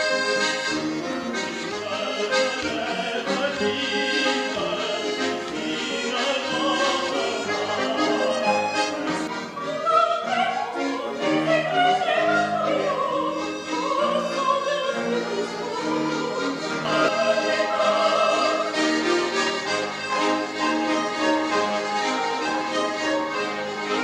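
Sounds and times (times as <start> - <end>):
accordion: 0.0 - 24.0
piano: 0.0 - 24.0
soprano singing operatic melody: 1.7 - 19.6.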